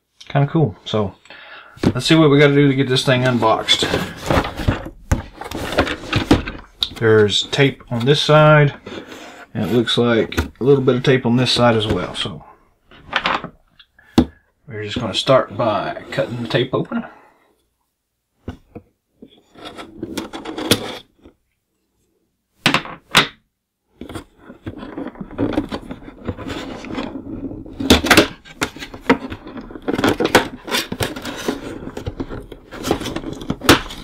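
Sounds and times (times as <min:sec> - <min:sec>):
cardboard scraping and rubbing: 0:01.8 - 0:10.9, 0:24.0 - 0:34.0
clicks and rustles: 0:24.0 - 0:34.0.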